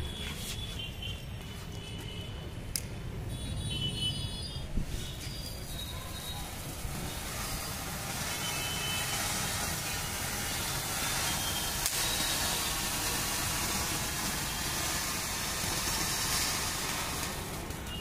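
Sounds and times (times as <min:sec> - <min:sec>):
firework fountain hissing and crackling: 0:04.1 - 0:18.0.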